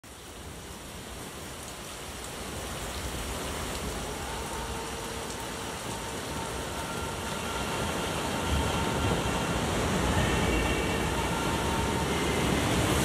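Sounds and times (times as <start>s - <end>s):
faint steady tones: 3.8s - 13.0s.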